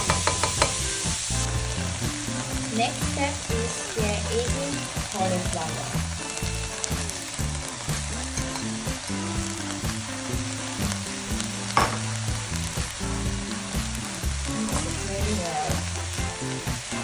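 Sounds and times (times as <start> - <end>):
vegetables sizzling in oil: 0.0 - 17.0.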